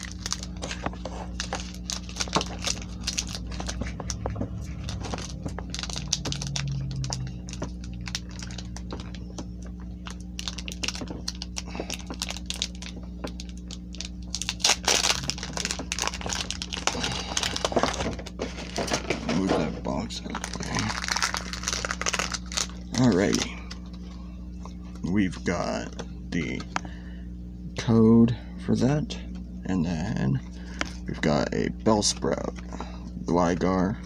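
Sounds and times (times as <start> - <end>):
foil wrapper crinkling and tearing: 0.0 - 19.5, 20.2 - 23.5.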